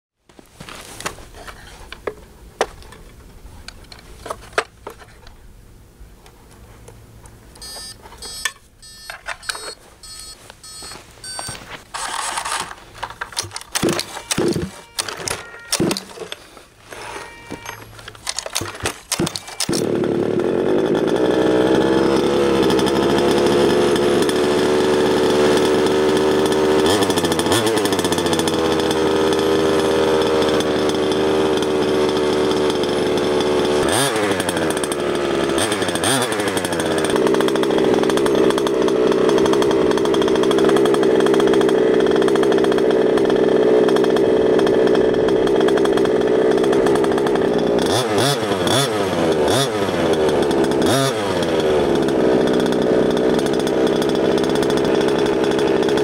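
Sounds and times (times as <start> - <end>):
clicks: 6.2 - 19.9
two-stroke engine idling: 13.3 - 56.0.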